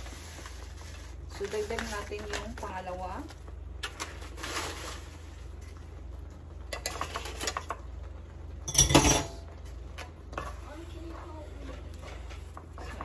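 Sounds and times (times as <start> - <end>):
spoon scraping a skillet: 6.7 - 7.8, 9.3 - 13.0.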